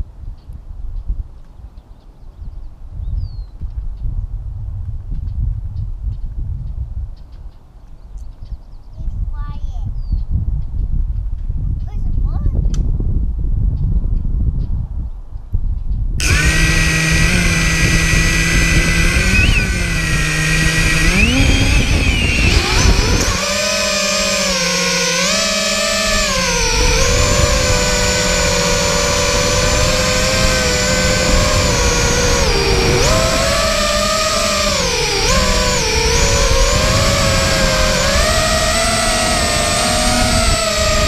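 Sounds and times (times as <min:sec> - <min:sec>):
electric motor propeller whine: 0:16.2 - 0:41.0.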